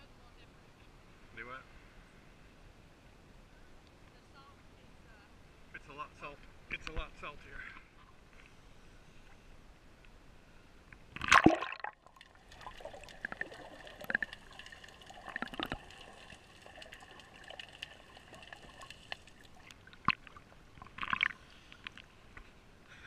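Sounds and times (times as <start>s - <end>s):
sharp clicks underwater: 10.9s - 22.5s
water splashing: 11.1s - 22.1s.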